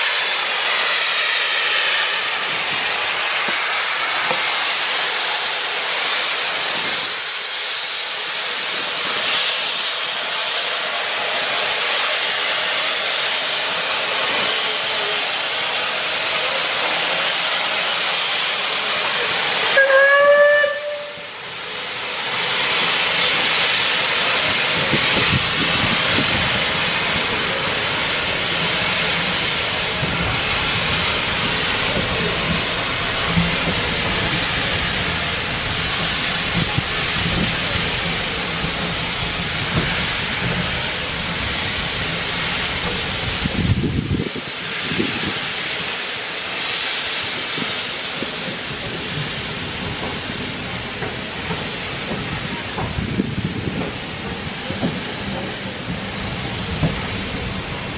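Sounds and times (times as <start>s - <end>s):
steam locomotive hissing: 0.0s - 57.9s
train coaches rumbling and clicking: 0.0s - 57.9s
steam whistle blast: 19.6s - 21.4s.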